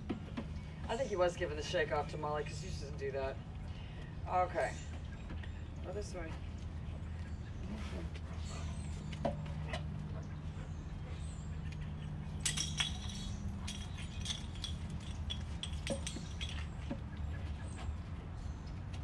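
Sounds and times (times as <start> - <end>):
light metallic clinks: 12.4 - 17.0.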